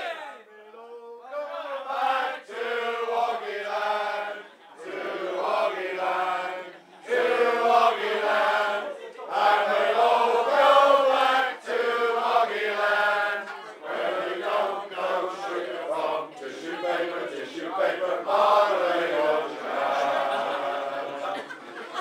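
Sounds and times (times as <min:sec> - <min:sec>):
group singing unaccompanied: 0:01.4 - 0:22.0.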